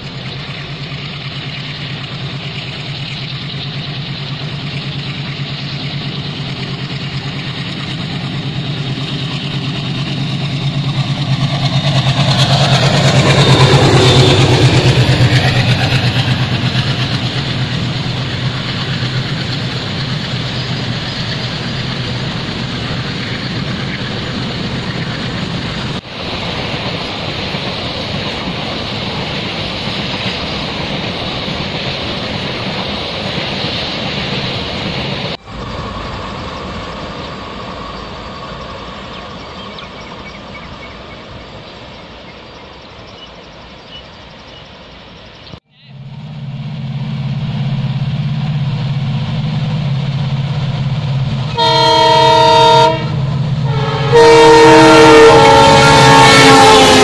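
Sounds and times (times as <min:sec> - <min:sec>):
diesel locomotive chugging: 0:00.0 - 0:57.0
freight wagons rumbling on track: 0:00.0 - 0:57.0.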